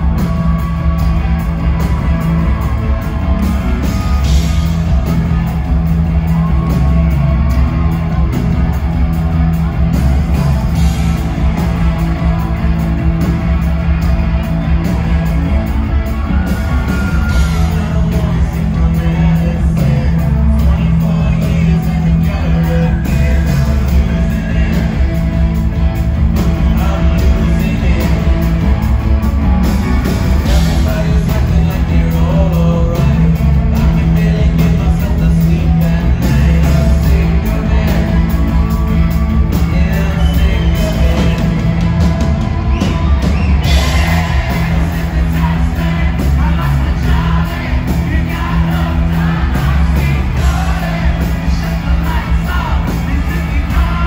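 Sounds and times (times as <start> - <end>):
live rock band playing: 0.0 - 54.0
singer singing and shouting: 30.0 - 54.0.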